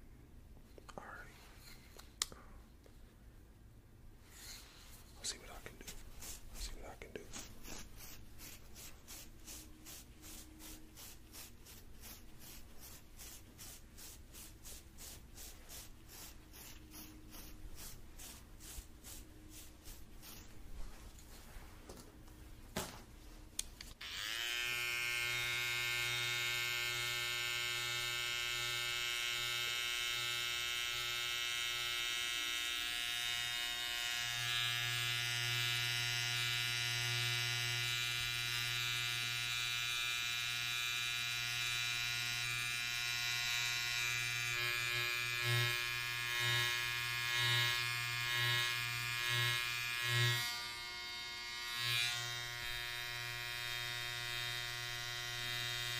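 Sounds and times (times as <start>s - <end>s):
electric hair clippers buzzing: 24.0s - 55.9s.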